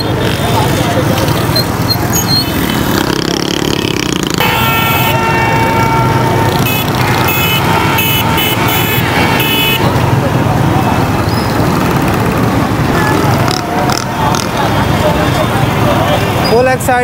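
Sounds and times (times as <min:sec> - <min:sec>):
motorbike engines running: 0:00.0 - 0:17.0
vehicle horn honking: 0:04.4 - 0:09.9.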